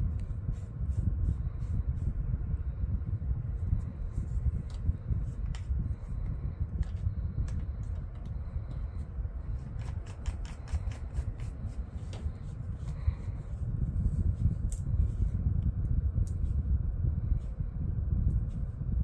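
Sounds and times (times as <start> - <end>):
low rumble: 0.0 - 19.0.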